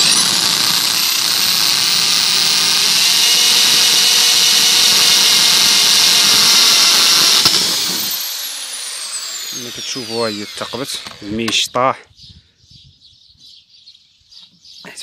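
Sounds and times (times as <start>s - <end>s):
electric drill whining: 0.0s - 11.6s.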